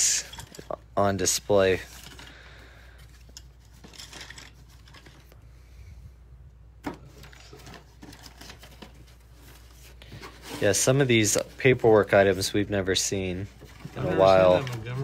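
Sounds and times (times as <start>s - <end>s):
paper and cardboard rustling: 6.8s - 15.0s.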